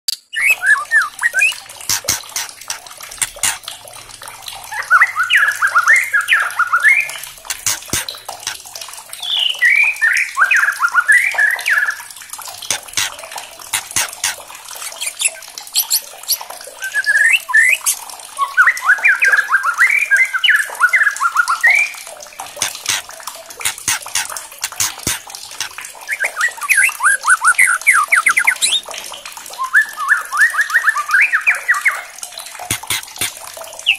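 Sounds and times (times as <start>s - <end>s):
bird whistled song: 0.1s - 1.6s, 9.2s - 12.0s, 14.8s - 21.9s, 26.1s - 28.8s, 29.6s - 32.1s
sharp bird clicking calls: 0.1s - 3.7s, 4.7s - 8.6s, 9.2s - 21.9s, 22.5s - 29.0s, 31.0s - 33.9s.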